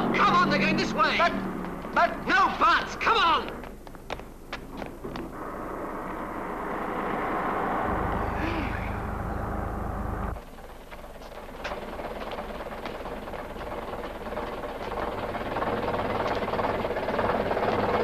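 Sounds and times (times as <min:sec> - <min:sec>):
bus engine rumbling: 0:00.0 - 0:18.0
engine idling hum: 0:03.7 - 0:18.0
knocks and clatter: 0:10.1 - 0:18.0.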